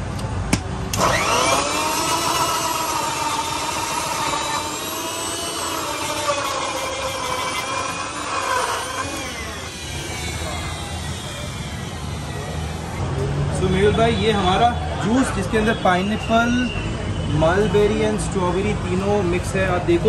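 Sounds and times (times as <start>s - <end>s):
blender motor whining: 0.9s - 13.0s.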